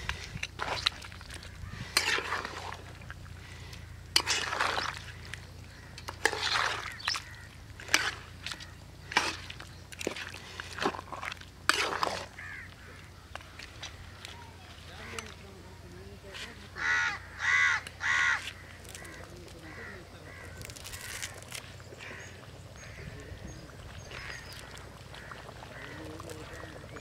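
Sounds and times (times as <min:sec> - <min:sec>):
curry simmering with wet plops: 0:00.4 - 0:13.8, 0:21.8 - 0:27.0.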